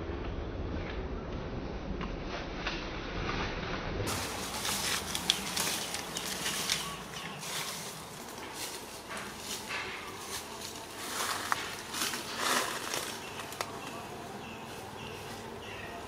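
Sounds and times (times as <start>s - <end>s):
noisy outdoor background: 0.0s - 16.0s
scattered crackles and taps: 4.1s - 14.0s.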